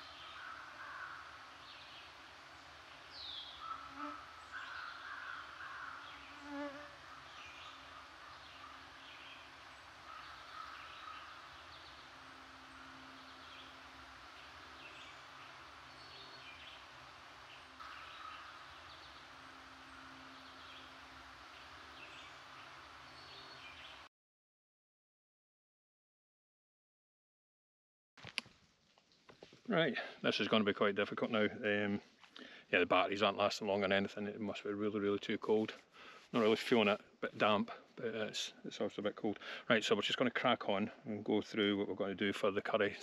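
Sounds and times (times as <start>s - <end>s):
low steady hum: 0.0s - 24.1s
small birds chirping: 0.0s - 24.1s.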